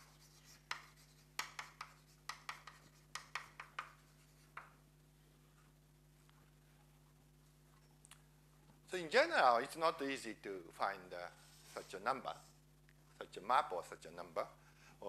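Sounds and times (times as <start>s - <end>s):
chalk tapping and scraping on blackboard: 0.0s - 4.8s
faint low hum: 0.0s - 15.0s.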